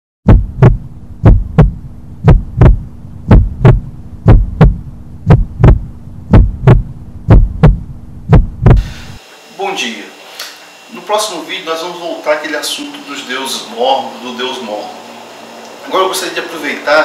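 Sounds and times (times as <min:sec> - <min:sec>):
heartbeat thumps: 0:00.2 - 0:09.2
low steady hum: 0:00.3 - 0:17.0.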